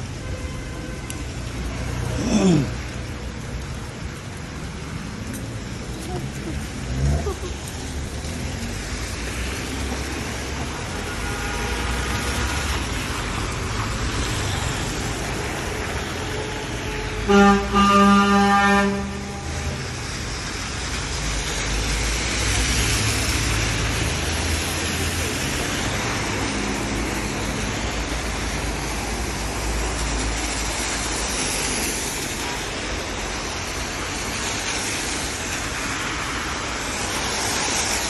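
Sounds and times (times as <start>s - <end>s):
tyres hissing on wet road: 0.0s - 38.0s
passing vehicle rumble: 1.4s - 11.1s.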